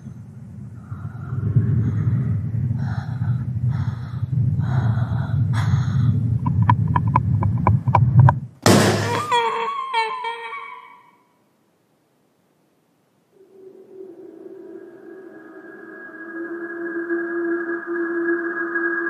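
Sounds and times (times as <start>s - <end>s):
low rumbling drone: 0.0s - 8.6s, 13.3s - 19.0s
gasping breaths: 0.8s - 6.5s
sudden loud hit: 8.6s - 9.4s
wavering high-pitched cry: 9.0s - 11.4s, 13.4s - 19.0s.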